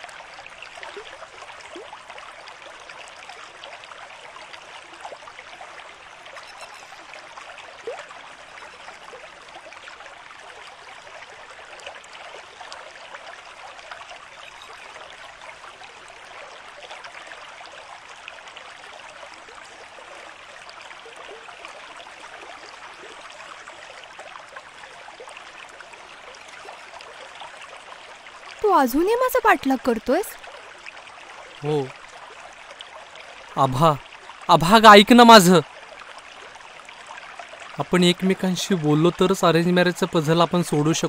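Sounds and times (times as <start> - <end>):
river water babbling: 0.0 - 41.0.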